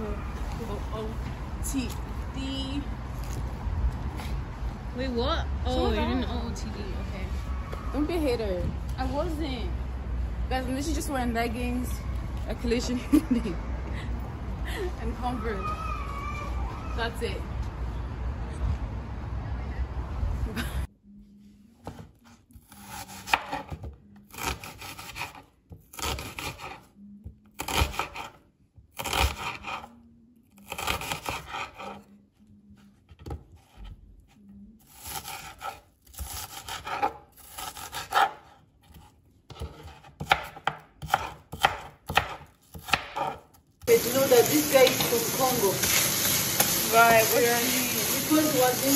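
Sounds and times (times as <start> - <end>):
knife cutting onion on board: 22.5 - 26.9, 27.6 - 28.4, 29.0 - 29.9, 30.6 - 32.1, 34.8 - 45.1.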